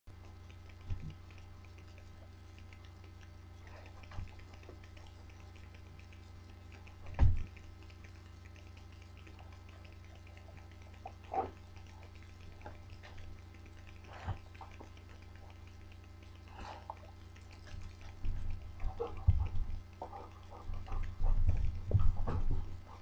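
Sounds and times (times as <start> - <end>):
low electrical hum: 0.1 - 23.0
dull thumps: 7.1 - 7.6, 18.2 - 22.8.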